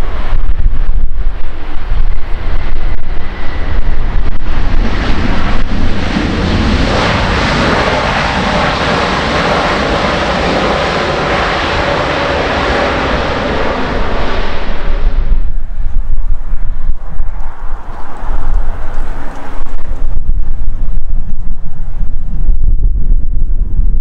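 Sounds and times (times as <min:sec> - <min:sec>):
jet engines roaring in reverse thrust: 0:00.0 - 0:20.2
wind buffeting microphone: 0:00.0 - 0:24.0.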